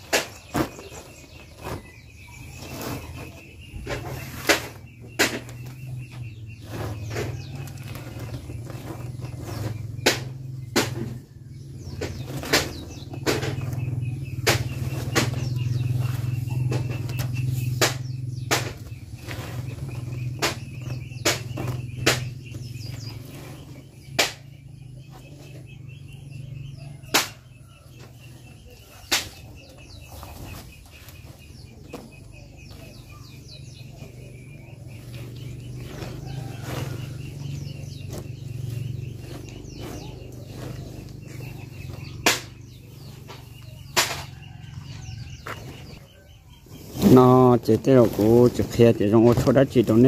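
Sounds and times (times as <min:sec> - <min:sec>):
leaves rustling and crackling: 0:46.8 - 0:50.0.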